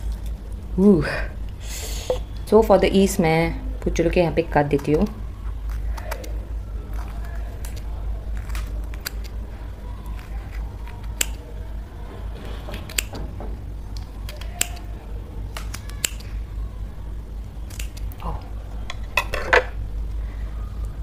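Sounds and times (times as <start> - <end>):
low room hum: 0.0 - 21.0
knife snips and clicks: 14.0 - 14.9, 15.5 - 16.3, 17.7 - 18.2.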